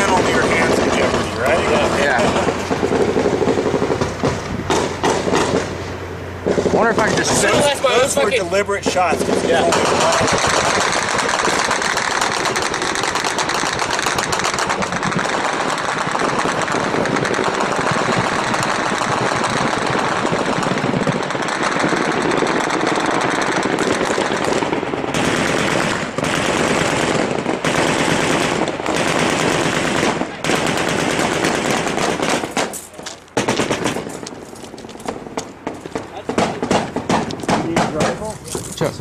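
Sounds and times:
automatic gunfire: 0.0 - 5.7, 9.2 - 32.8, 33.4 - 34.3, 35.1 - 38.2.

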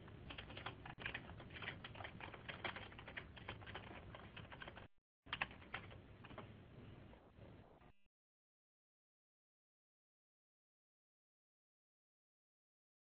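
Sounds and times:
keyboard typing clicks: 0.3 - 6.5.

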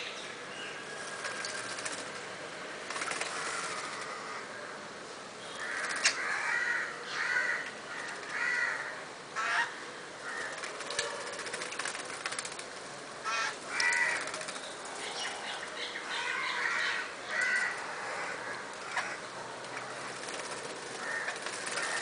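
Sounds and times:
splashing and wing-fluttering: 1.0 - 4.2, 10.3 - 15.8, 18.6 - 22.0
birds harsh chattering calls: 2.9 - 4.8, 5.4 - 22.0.

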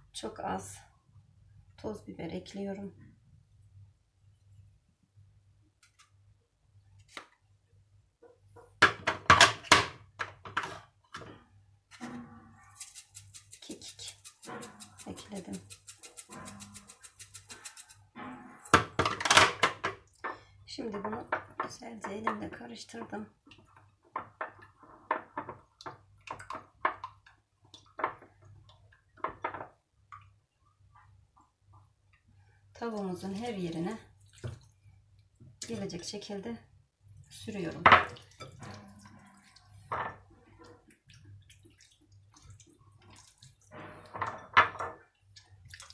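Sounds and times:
wet squishes and scrapes in bowl: 12.5 - 18.7, 31.7 - 36.4, 37.1 - 45.9.

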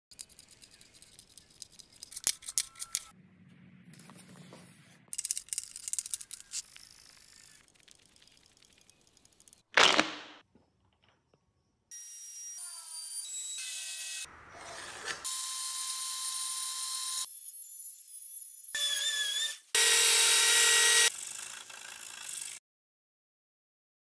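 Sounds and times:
wooden blocks clicking together: 5.2 - 6.7.

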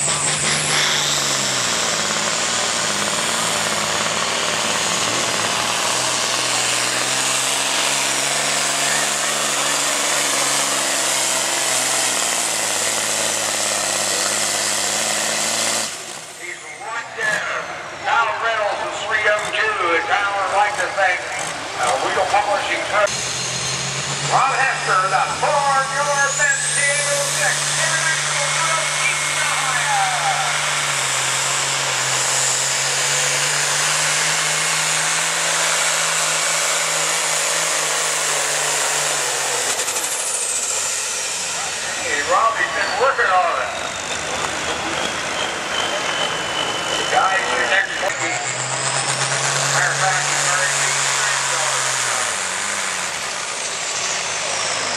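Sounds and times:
tractor diesel engine droning: 0.0 - 54.9
engine hiss: 18.1 - 54.9.

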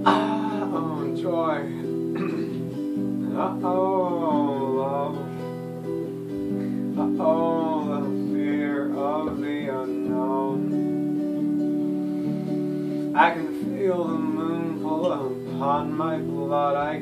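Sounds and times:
clean electric guitar chords: 0.0 - 17.0
sliding guitar melody: 0.0 - 17.0.

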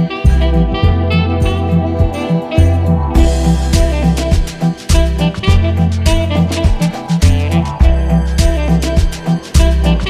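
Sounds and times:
upbeat instrumental music: 0.0 - 10.0.

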